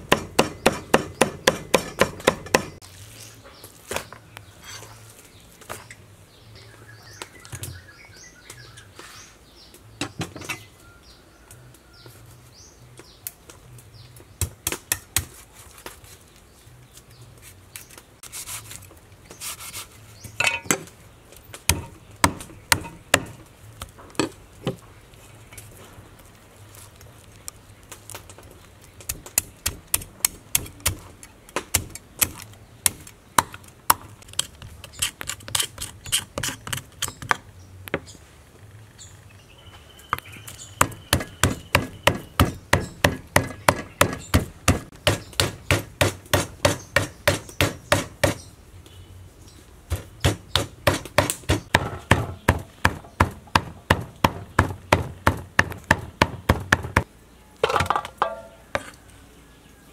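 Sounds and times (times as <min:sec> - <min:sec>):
knife chopping on wooden board: 0:40.8 - 0:48.4, 0:49.9 - 0:57.0.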